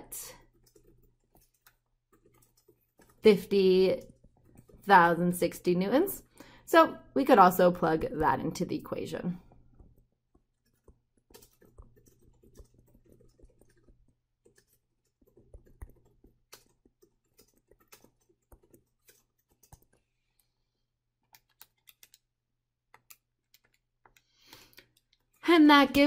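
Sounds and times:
stylus tapping tablet screen: 0:00.4 - 0:06.6, 0:07.8 - 0:20.6, 0:22.9 - 0:25.4.

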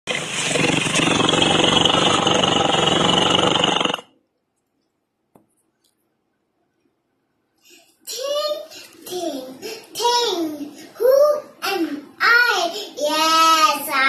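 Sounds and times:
tiger growl: 0:00.1 - 0:04.0.

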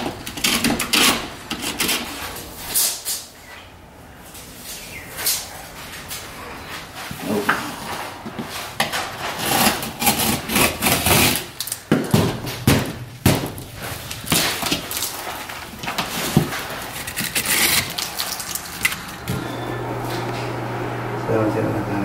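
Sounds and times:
utility knife scraping board: 0:08.8 - 0:11.5, 0:15.9 - 0:18.0.

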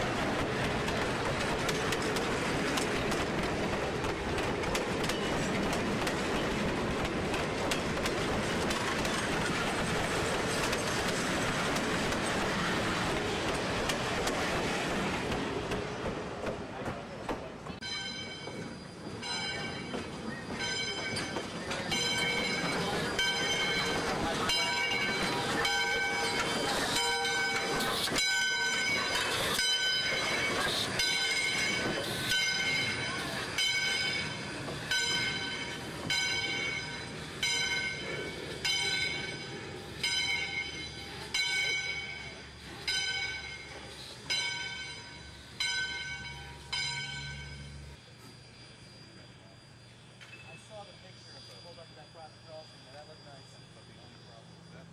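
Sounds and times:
steam locomotive rumbling past: 0:00.0 - 0:54.9
locomotive bell ringing: 0:17.7 - 0:54.9.

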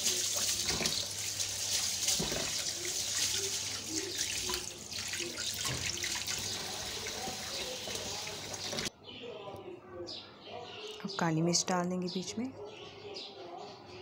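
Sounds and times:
tap water running: 0:00.0 - 0:08.9
water splashing: 0:00.0 - 0:08.9.

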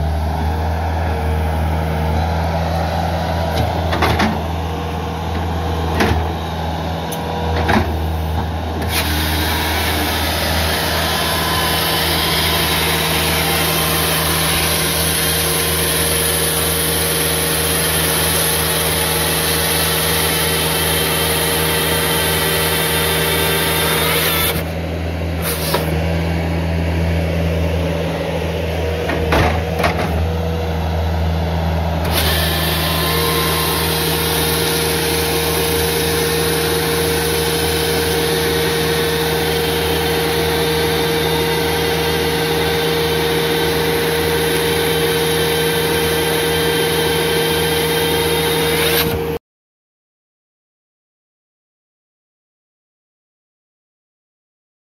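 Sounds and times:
skid steer engine running: 0:00.0 - 0:49.4
chain saw cutting log: 0:08.8 - 0:24.8, 0:25.4 - 0:26.0, 0:32.0 - 0:49.4.

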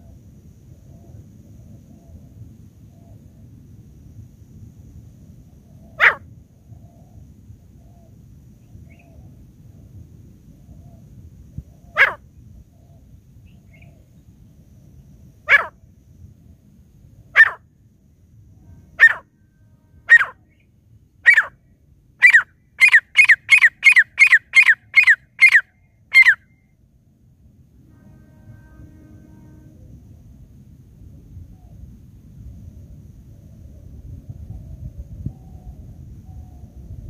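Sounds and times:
francolin calling: 0:05.9 - 0:06.2, 0:11.7 - 0:14.1, 0:15.5 - 0:15.8, 0:17.4 - 0:17.6, 0:18.8 - 0:19.3, 0:20.0 - 0:21.6, 0:22.2 - 0:26.7.

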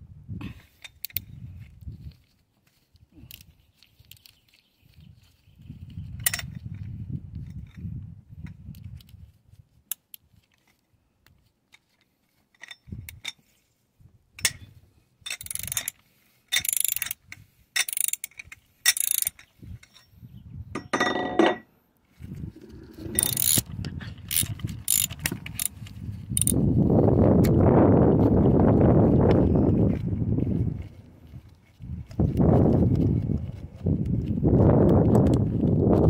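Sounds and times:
ratchet wrench clicking: 0:15.3 - 0:17.2, 0:17.8 - 0:19.5, 0:23.2 - 0:23.6, 0:24.3 - 0:25.8, 0:26.4 - 0:26.6.

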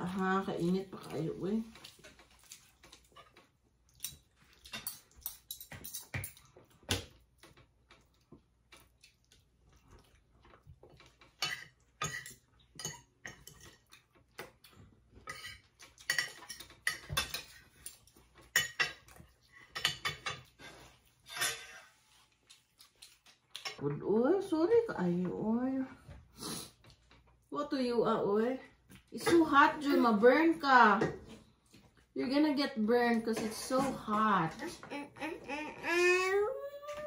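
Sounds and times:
cutlery clinking on plates: 0:04.0 - 0:07.0, 0:11.2 - 0:14.0, 0:15.2 - 0:21.9.

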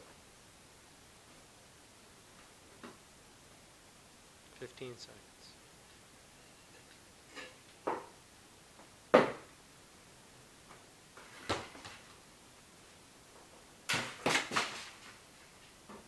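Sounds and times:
hard props knocking on table: 0:09.1 - 0:09.5.

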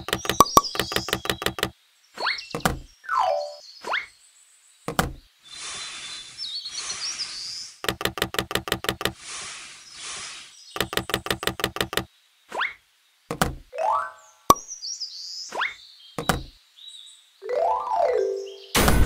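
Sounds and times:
rapid clicks: 0:00.0 - 0:01.7, 0:07.8 - 0:09.2, 0:10.8 - 0:12.1
bird chirping: 0:00.0 - 0:18.8.

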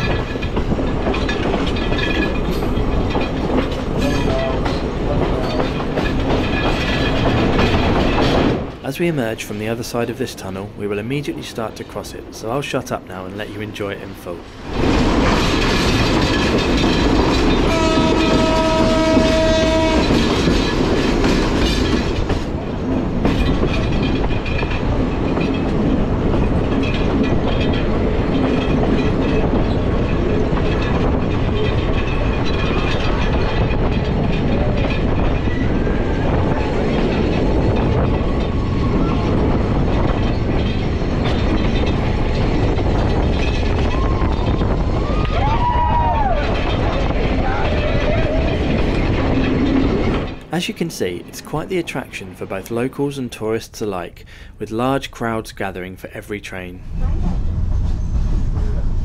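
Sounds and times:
train rumbling on rails: 0:00.0 - 0:59.0
train horn chord: 0:17.7 - 0:20.2.

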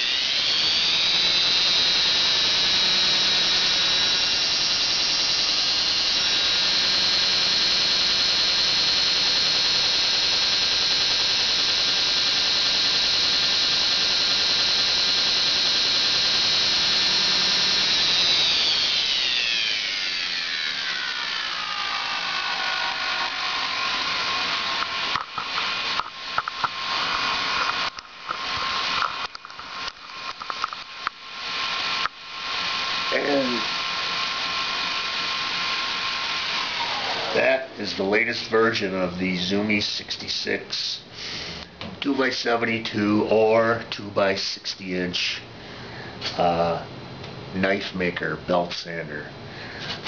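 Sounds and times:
belt grinder whine: 0:00.0 - 0:43.8.

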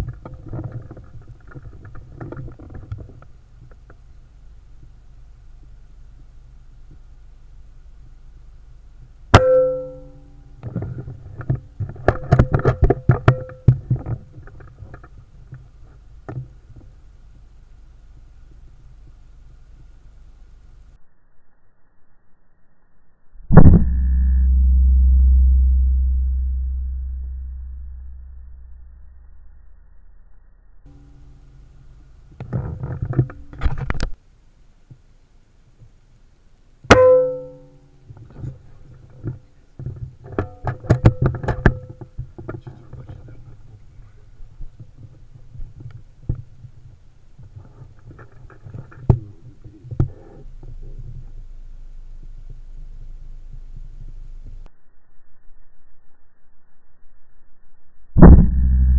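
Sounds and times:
ringing tone: 0:09.4 - 0:10.5, 0:23.5 - 0:30.0, 0:36.9 - 0:37.8.

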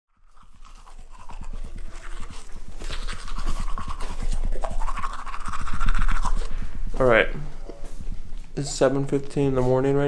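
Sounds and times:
toothbrush scrubbing teeth: 0:00.1 - 0:06.7.

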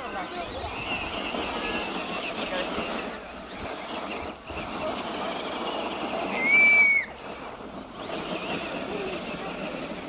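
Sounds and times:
toy truck running: 0:00.0 - 0:10.0
short high whistle tone: 0:06.3 - 0:07.2.

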